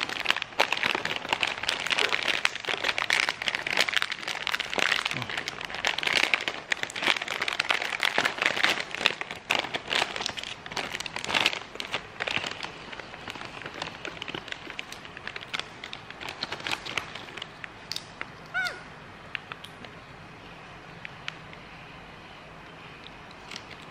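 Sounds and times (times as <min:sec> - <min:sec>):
plastic snack bag crackling: 0:00.0 - 0:18.8, 0:23.4 - 0:23.9.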